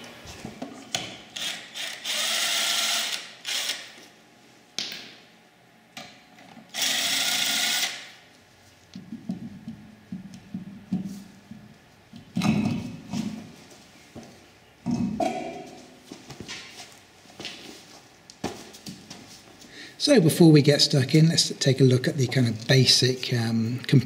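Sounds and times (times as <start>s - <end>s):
impact wrench spinning: 1.4s - 4.0s, 6.7s - 8.2s.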